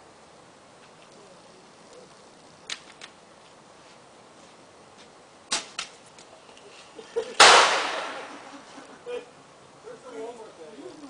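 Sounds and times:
sharp cracks: 2.6s - 3.2s, 5.5s - 6.3s, 7.3s - 8.6s
firework bang with echo: 7.4s - 8.5s.

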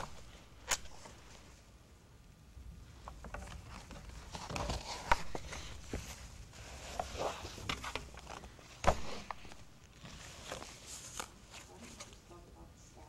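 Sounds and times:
paper rustling: 3.0s - 12.4s
pages flapping: 3.3s - 12.2s.

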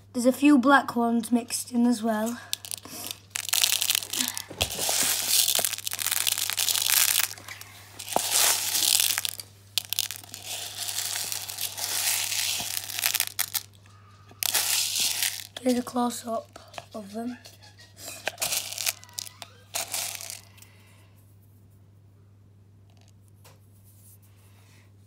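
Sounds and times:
plastic pellets rattling into a bowl: 2.2s - 17.2s, 18.0s - 20.6s.

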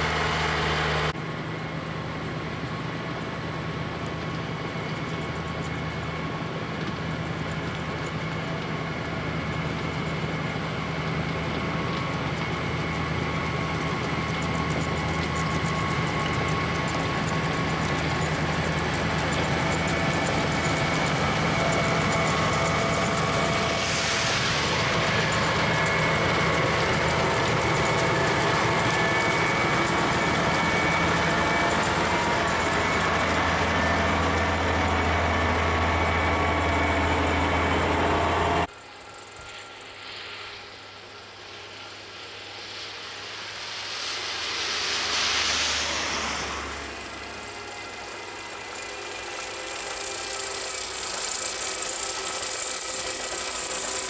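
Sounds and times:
snowplow diesel engine running: 0.0s - 54.0s
rushing hiss: 19.0s - 36.8s, 39.0s - 54.0s.

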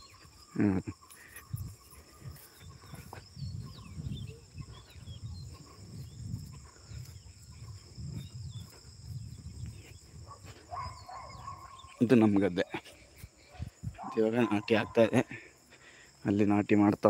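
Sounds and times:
insects droning: 0.0s - 17.0s
footsteps on grass: 1.2s - 15.0s.

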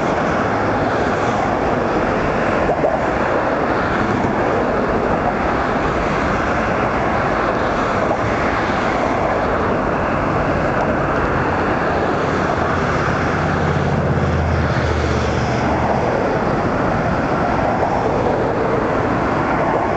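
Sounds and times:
heavy vehicle engine hum: 0.0s - 19.9s
road traffic roar: 0.0s - 19.9s.

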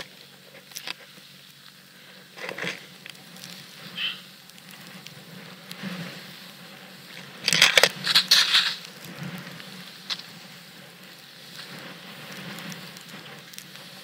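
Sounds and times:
crunching scrape of snow: 0.0s - 14.0s
snowboard hissing through powder: 0.0s - 14.0s.

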